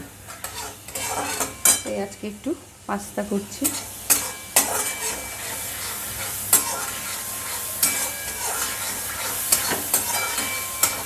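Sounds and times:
oil sizzling in a wok: 0.0 - 11.0
metal spatula stirring: 0.3 - 1.9, 3.6 - 11.0
spatula clanking against pan: 3.6 - 5.6, 6.5 - 11.0.

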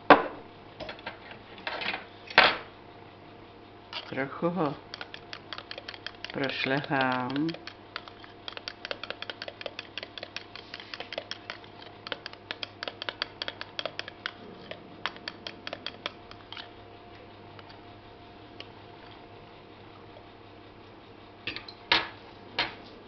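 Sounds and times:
fork clicking against plastic bowl: 4.9 - 16.7.

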